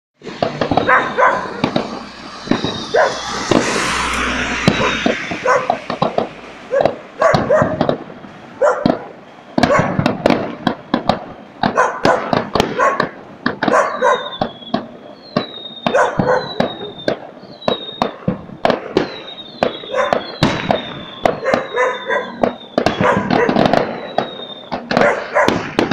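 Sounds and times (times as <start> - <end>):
falling firework whistles: 0.2 - 25.9
firework bangs and crackling: 0.2 - 25.9
dog barking: 0.8 - 1.7, 2.9 - 3.2, 4.8 - 5.8, 6.7 - 7.8, 8.6 - 10.0, 11.6 - 14.4, 15.9 - 16.7, 19.8 - 20.3, 21.4 - 22.4, 23.0 - 24.1, 24.9 - 25.6.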